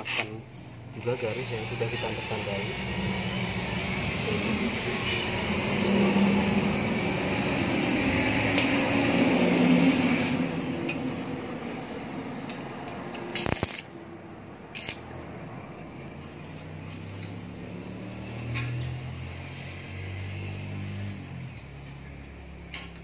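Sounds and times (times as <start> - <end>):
arc welder crackling: 12.5 - 14.0, 14.7 - 15.2.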